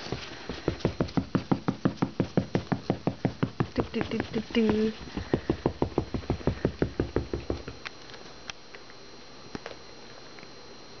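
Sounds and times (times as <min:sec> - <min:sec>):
dog panting: 0:03.7 - 0:06.8.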